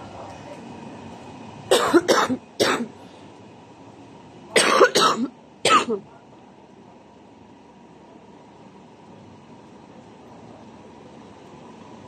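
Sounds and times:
person coughing: 1.7 - 2.9, 4.6 - 6.1.

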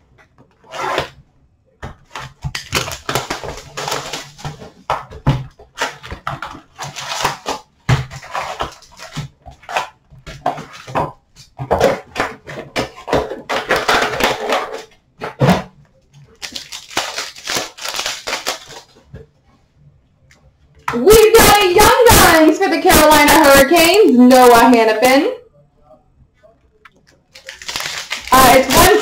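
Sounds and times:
plastic wrap crinkling and tearing: 2.0 - 11.0, 16.2 - 19.1, 26.9 - 29.0
cardboard and foil packs rustling: 2.0 - 19.1, 27.3 - 29.0.

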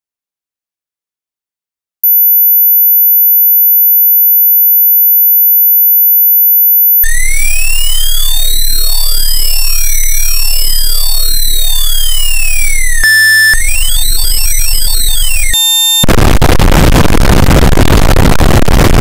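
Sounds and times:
high-pitched electronic sine tone: 6.7 - 17.1
synthetic tones sweeping up and down: 7.1 - 16.2
low hum: 7.1 - 16.6.

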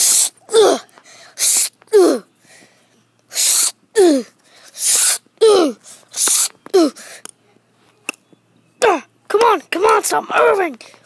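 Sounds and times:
short hissing bursts: 0.0 - 0.4, 1.2 - 1.8, 3.3 - 3.8, 4.6 - 6.6.

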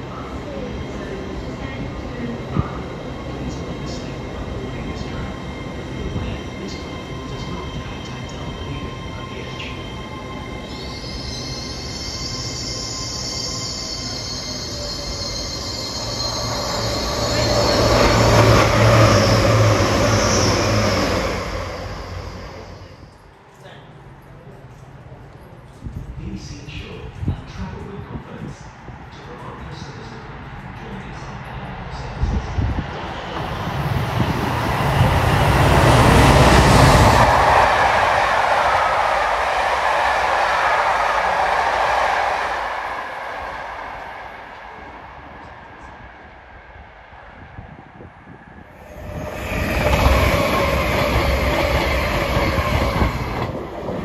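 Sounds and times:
diesel locomotive engine passing: 0.0 - 23.4, 29.8 - 54.0
high wheel squeal: 9.6 - 23.2, 48.8 - 53.6
wheel and rail rumble: 29.4 - 54.0.

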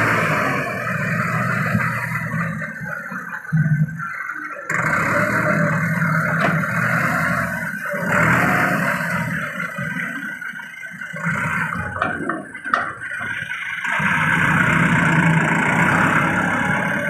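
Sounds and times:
tractor engine under load: 0.0 - 17.0.

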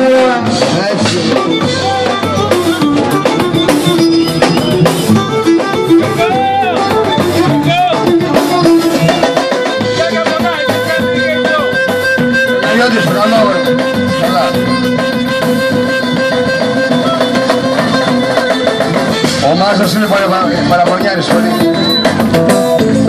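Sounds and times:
drum kit beat: 0.0 - 23.0
keyboard: 0.0 - 23.0
bowed lyra melody: 1.3 - 10.0, 10.6 - 19.7.

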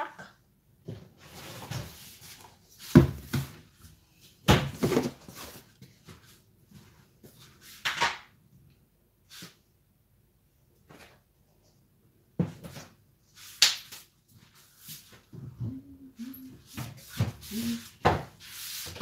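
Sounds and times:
plastic tub knocks and clatters: 4.5 - 5.3.

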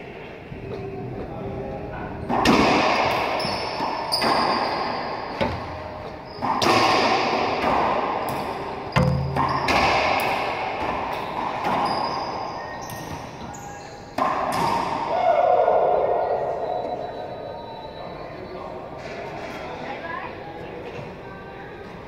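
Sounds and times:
racquetball hits echoing: 2.2 - 16.3.

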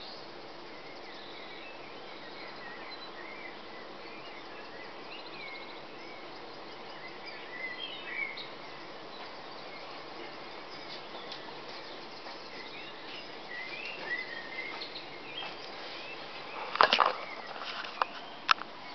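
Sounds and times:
background hiss: 0.0 - 18.9
songbirds singing: 0.0 - 18.9.

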